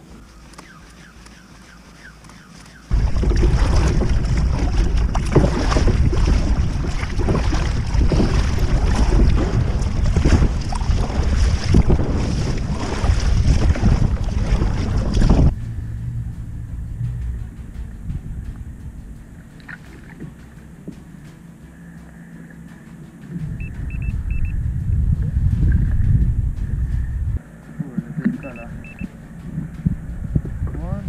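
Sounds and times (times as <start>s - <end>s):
water splashing against kayak hull: 0.0s - 24.4s
wind buffeting microphone: 2.9s - 31.0s.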